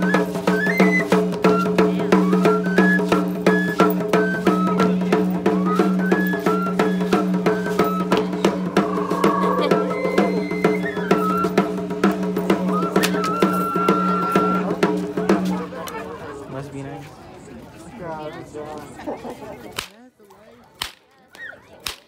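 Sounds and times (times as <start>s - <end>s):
flute melody: 0.0s - 14.8s
fast drumbeat: 1.6s - 15.4s
low drone: 8.5s - 10.9s.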